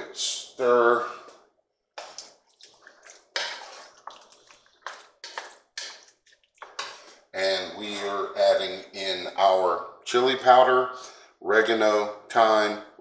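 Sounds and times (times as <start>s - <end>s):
spoon stirring wet chili: 2.0s - 7.2s.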